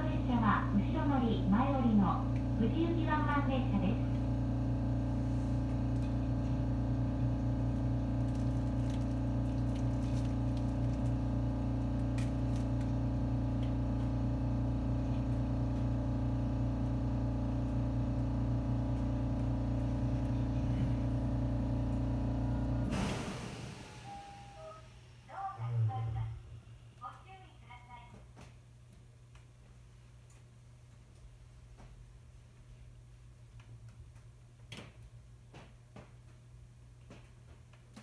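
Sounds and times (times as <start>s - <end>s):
electrical hum and blower noise: 0.0s - 38.0s.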